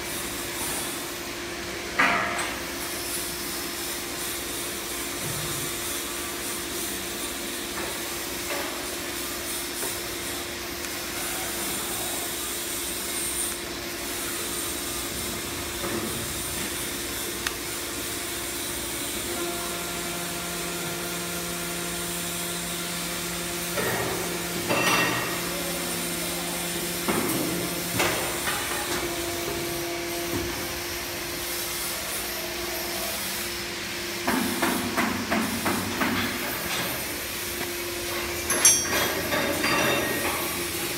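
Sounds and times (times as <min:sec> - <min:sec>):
bending machine motor hum: 0:10.4 - 0:34.2.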